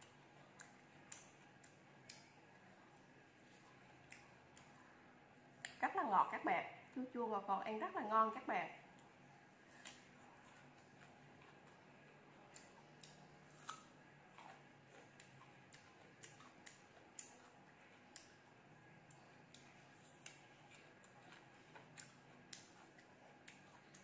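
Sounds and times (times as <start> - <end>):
crisp crunching of fruit being chewed: 8.9 - 18.5, 19.2 - 24.0.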